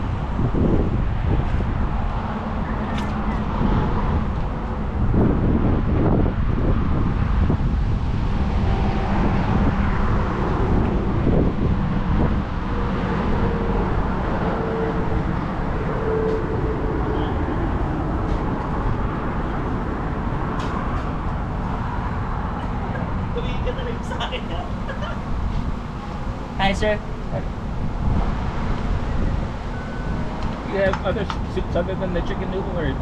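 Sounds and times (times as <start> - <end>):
car engine and road rumble: 0.0 - 33.0.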